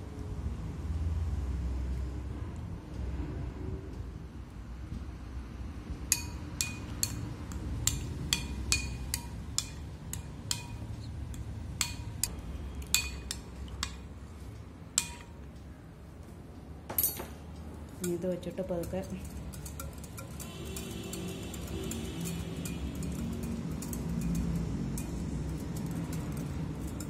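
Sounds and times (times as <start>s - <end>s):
spoon clinking glass bowl: 6.1s - 14.1s, 15.0s - 15.4s, 18.8s - 27.0s.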